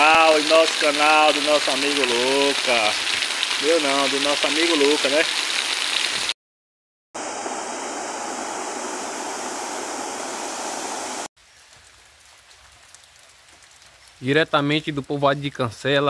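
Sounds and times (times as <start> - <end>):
waterfall rushing: 7.2 - 11.3.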